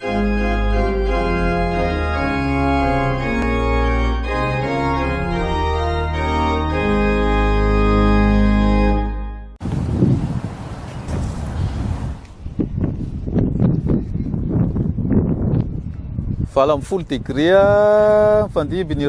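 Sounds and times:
organ playing slow chords: 0.0 - 9.6.

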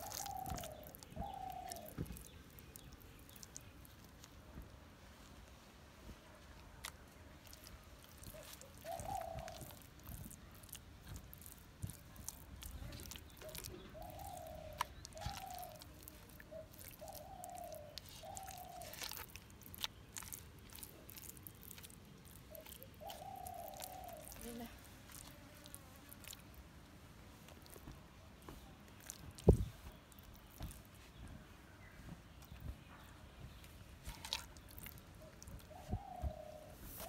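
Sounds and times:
hands squishing spice paste: 0.0 - 4.8, 6.4 - 26.8, 27.4 - 31.2, 33.5 - 37.0
bird calling low notes: 13.0 - 21.6, 22.3 - 25.3.

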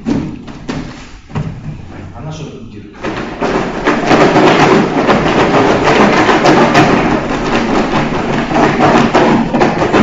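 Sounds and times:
paper lots rattling in a box: 3.0 - 10.0.

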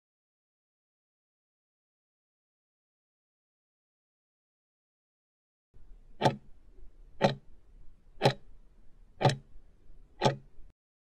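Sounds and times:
clock ticking: 6.2 - 6.6, 7.2 - 7.5, 8.2 - 8.5, 9.2 - 9.5, 10.2 - 10.6.

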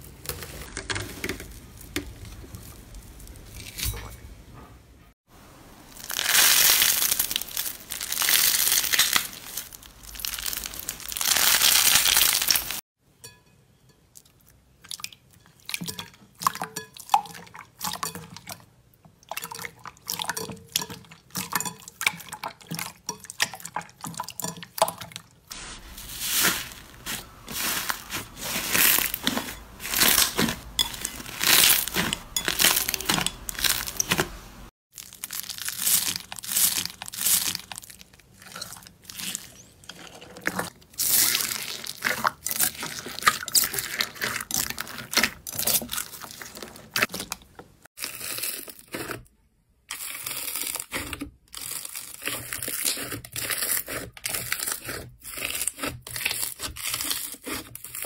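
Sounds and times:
foam beads crunching: 5.9 - 12.8, 25.5 - 34.3, 34.9 - 39.7
sponge squeezed crackly rustling: 5.9 - 12.8, 25.5 - 47.2
crunching presses: 25.5 - 39.9.

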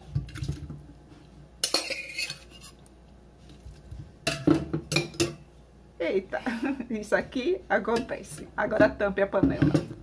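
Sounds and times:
metal utensils clinking on cookware: 1.6 - 2.8.

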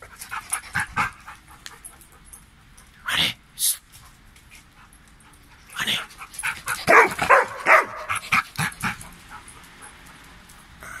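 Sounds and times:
dog barking and yipping: 6.4 - 10.0.

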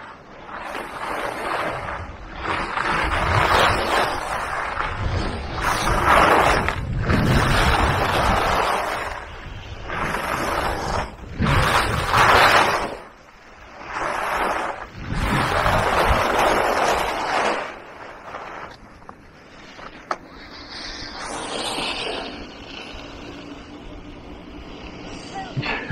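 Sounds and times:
wind on microphone: 0.0 - 18.8
skis scraping over snow: 0.0 - 25.9.

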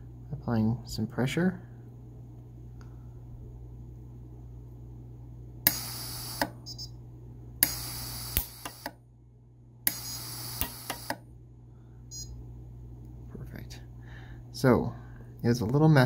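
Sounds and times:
welder snap and hiss: 5.7 - 6.6, 7.6 - 9.0, 9.9 - 11.2
welder clicks: 7.6 - 9.0, 9.9 - 11.2.

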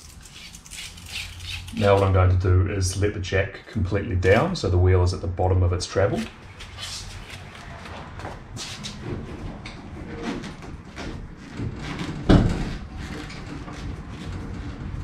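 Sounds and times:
heavy thump: 12.3 - 12.8.

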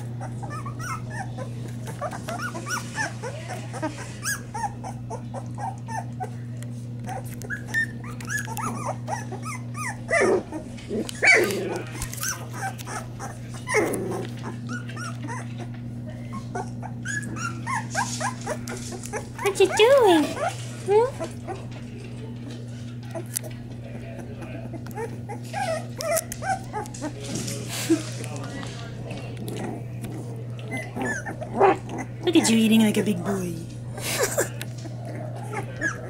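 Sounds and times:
puppies whimpering: 0.0 - 36.0.

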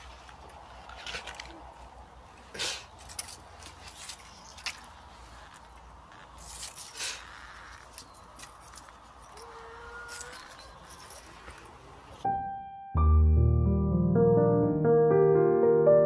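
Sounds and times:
background music: 12.2 - 16.0
piano note: 12.2 - 16.0.

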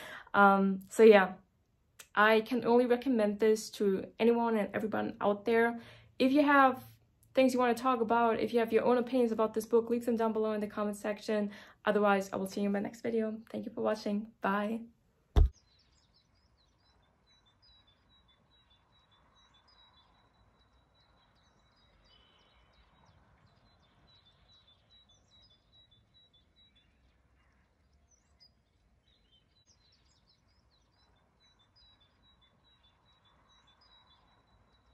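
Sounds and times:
small birds chirping: 0.0 - 1.4, 15.4 - 34.9
soft outdoor background noise: 0.0 - 34.9.

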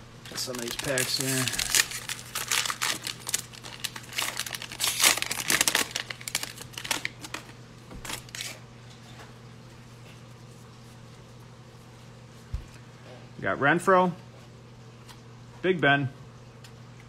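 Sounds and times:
faint steady hum: 0.0 - 17.0
foil wrapper crinkling and tearing: 0.2 - 8.6.

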